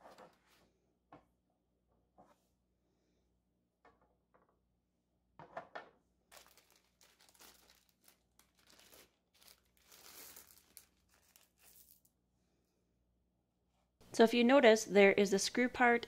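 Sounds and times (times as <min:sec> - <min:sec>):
plastic bag crinkling: 0:06.3 - 0:12.1.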